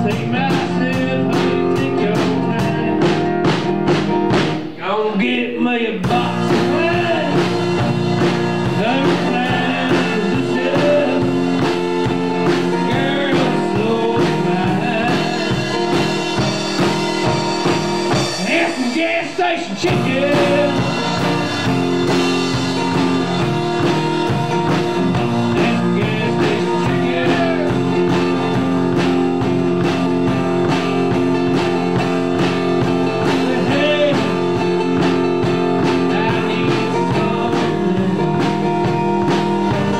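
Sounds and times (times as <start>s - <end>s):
person singing: 0.0s - 3.4s, 4.7s - 7.9s, 8.6s - 16.4s, 18.1s - 21.8s, 22.7s - 29.2s, 32.8s - 39.9s
drum kit beat: 0.0s - 5.0s, 6.0s - 39.9s
guitar: 0.0s - 39.9s.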